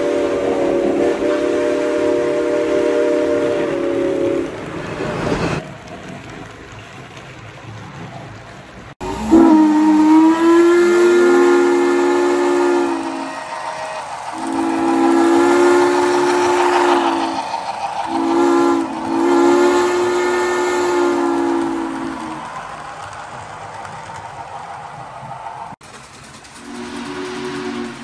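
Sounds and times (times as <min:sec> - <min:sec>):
steam locomotive chime whistle: 0:00.0 - 0:05.1, 0:09.0 - 0:22.6, 0:26.6 - 0:28.0.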